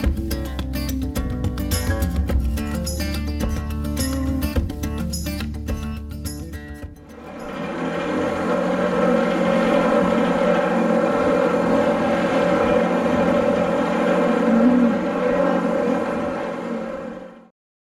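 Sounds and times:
engine droning steadily: 7.1s - 17.5s.

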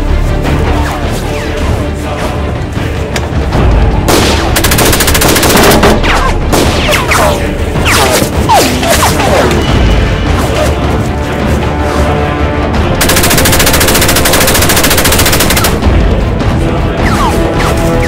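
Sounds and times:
music track: 0.0s - 18.0s
automatic gunfire: 4.6s - 6.0s, 13.0s - 15.8s.

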